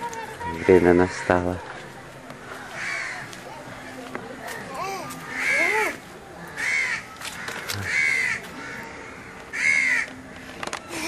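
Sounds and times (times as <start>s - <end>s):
bird calling: 4.6s - 10.2s.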